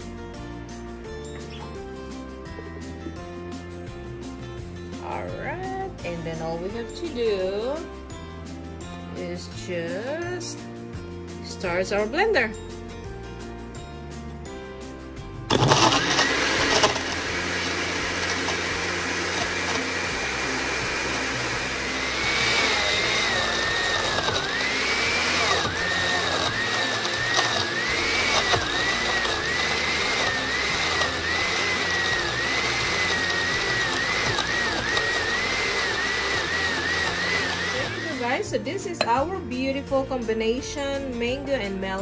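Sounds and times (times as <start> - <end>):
blender crushing ice: 15.5 - 38.5
blender motor whine: 15.5 - 38.5.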